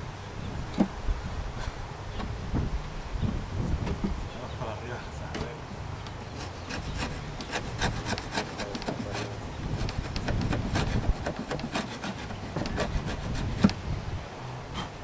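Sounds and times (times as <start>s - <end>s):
metal tool scraping wood: 6.2s - 13.8s.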